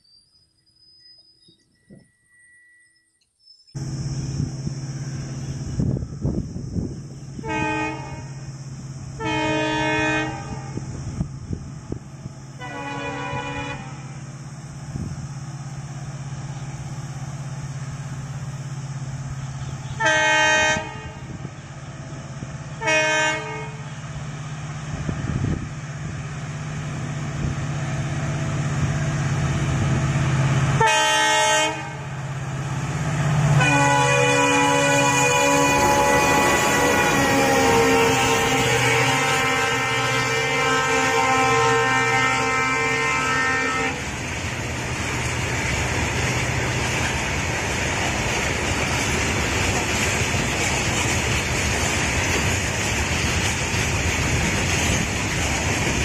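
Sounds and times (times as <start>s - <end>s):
diesel locomotive droning: 0.0s - 56.0s
locomotive horn blasts: 7.4s - 8.5s, 9.2s - 11.0s, 12.6s - 14.2s, 19.6s - 21.4s, 22.8s - 23.9s, 30.8s - 32.1s, 33.6s - 44.0s.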